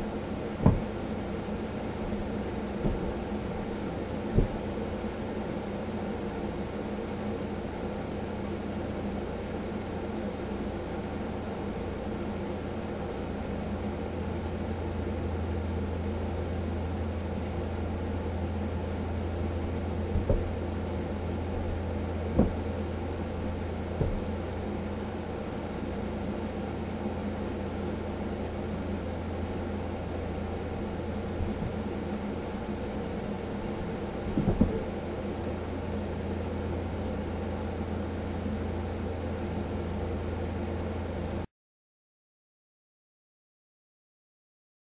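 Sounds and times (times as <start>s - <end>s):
low mechanical hum: 0.0s - 41.5s
short thumps: 0.6s - 1.0s, 2.2s - 3.3s, 4.3s - 4.8s, 20.1s - 20.6s, 22.2s - 22.8s, 23.9s - 24.4s, 34.3s - 35.0s.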